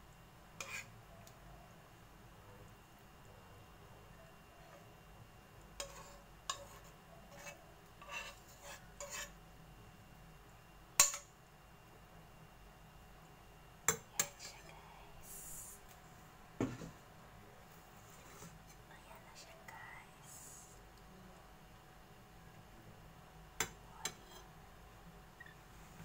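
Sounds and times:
metal spoon scraping frying pan: 0.6 - 0.9, 5.8 - 9.4.

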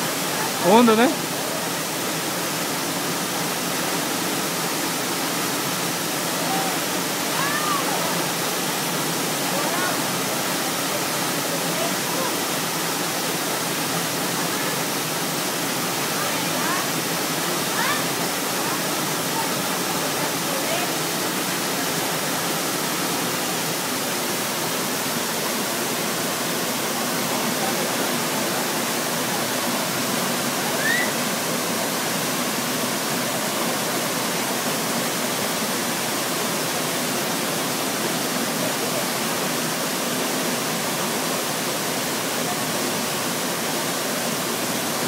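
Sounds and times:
waterfall rushing: 0.0 - 45.0.

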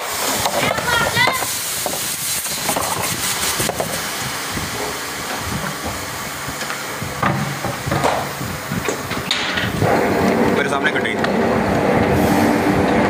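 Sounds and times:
machine hissing air: 0.0 - 13.0
machine knocks: 7.2 - 10.0.

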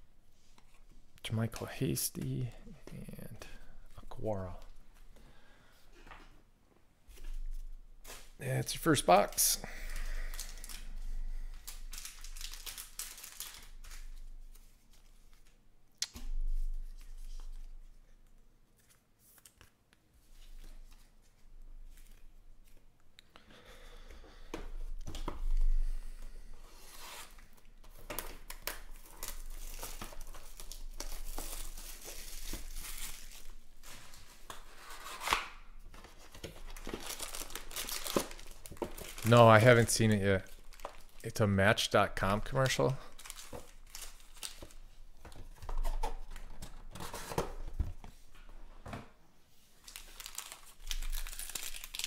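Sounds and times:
packaging crinkling and tearing: 9.9 - 15.6, 26.9 - 41.4, 42.3 - 47.5, 49.8 - 52.0.

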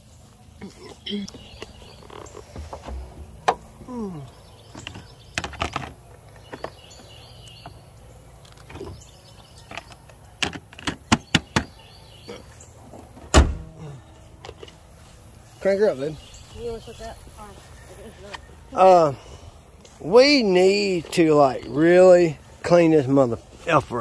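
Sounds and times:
car hood slammed shut: 13.2 - 13.8.

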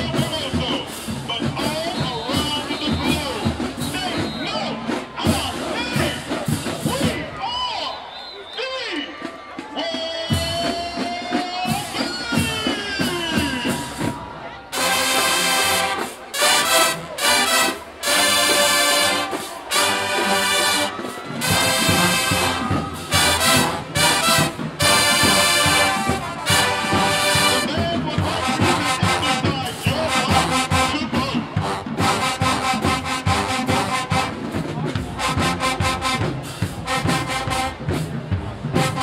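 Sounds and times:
marching band brass chords: 0.0 - 39.0
percussion: 9.0 - 39.0.

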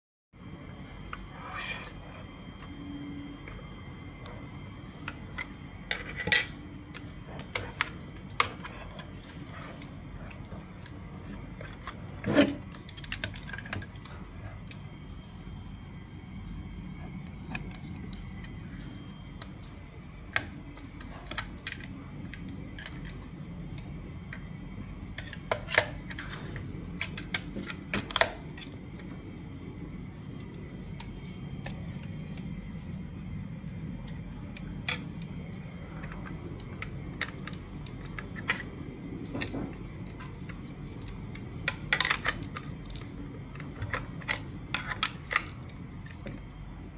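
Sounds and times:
steady low hum: 0.4 - 46.9.

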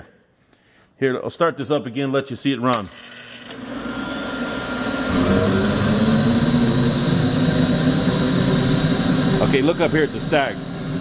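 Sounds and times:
burner blower motor running: 2.8 - 11.0.

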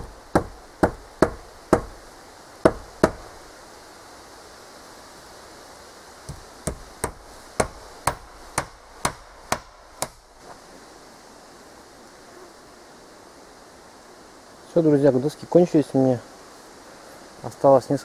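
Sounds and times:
hammer hitting nail into wood: 0.0 - 2.0, 2.7 - 3.2, 6.3 - 10.2.

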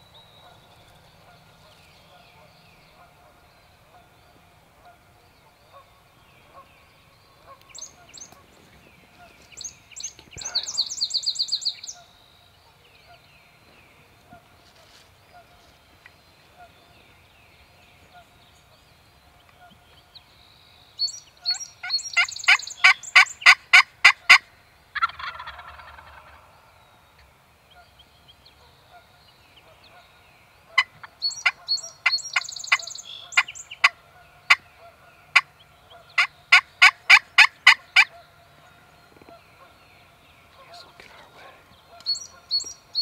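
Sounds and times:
turkey gobble: 22.2 - 26.5, 30.7 - 38.3
turkey yelps: 25.0 - 26.4.

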